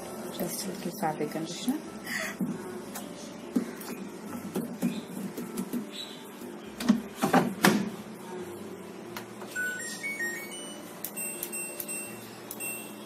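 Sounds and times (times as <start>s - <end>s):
washing machine beeps: 9.5s - 13.0s.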